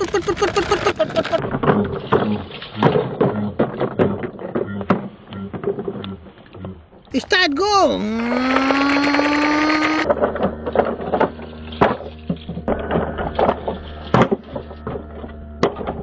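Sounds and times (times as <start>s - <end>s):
toy truck clattering over rock: 0.0s - 6.0s
person saying drawn-out word: 7.1s - 8.6s.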